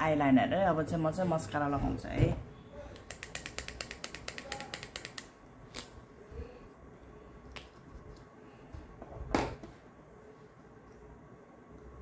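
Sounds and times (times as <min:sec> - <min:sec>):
makeup clicks and knocks: 0:03.0 - 0:05.3.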